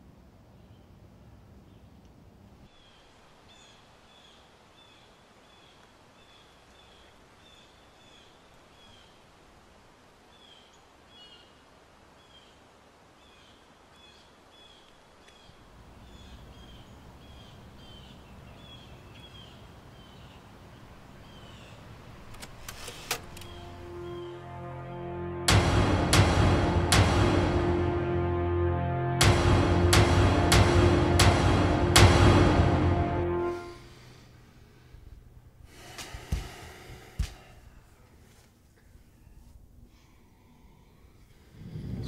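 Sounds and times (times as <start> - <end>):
low steady rumble: 23.2 - 35.7.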